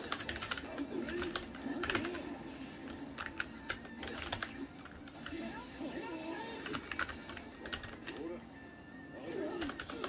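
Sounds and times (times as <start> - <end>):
keyboard keys clacking: 0.0 - 2.2, 2.9 - 5.4, 6.6 - 8.3.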